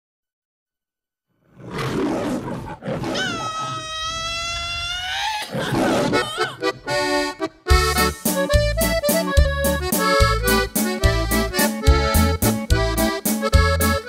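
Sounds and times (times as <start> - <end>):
animal roar: 1.4 - 6.5
accordion notes: 6.0 - 14.0.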